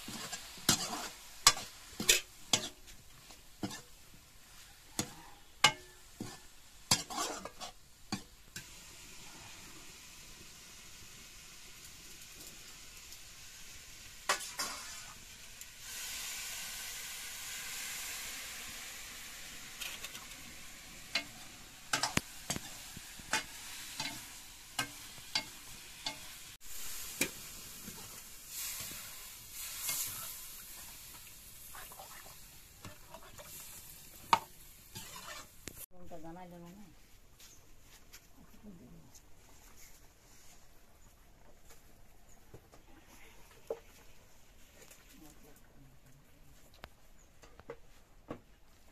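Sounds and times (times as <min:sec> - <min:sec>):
curry sizzling in pan: 0:00.0 - 0:35.9
metal spatula scraping pan: 0:00.1 - 0:02.9, 0:05.0 - 0:08.7, 0:14.3 - 0:15.2, 0:21.0 - 0:26.4, 0:32.8 - 0:35.7.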